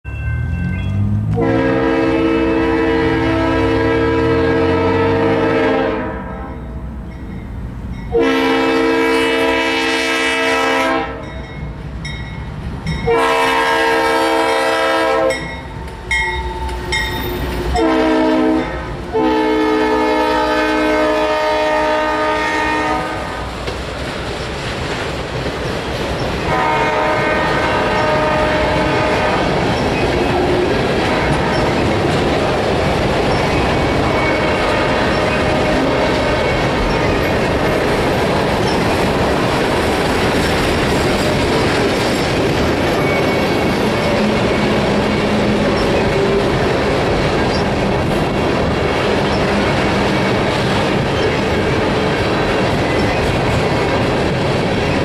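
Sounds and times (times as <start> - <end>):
locomotive air horn blasts: 1.3 - 6.6, 8.1 - 11.3, 13.0 - 15.5, 17.7 - 23.5, 26.4 - 29.6, 34.1 - 36.5
freight cars clickety-clack: 11.1 - 21.3, 22.2 - 55.0.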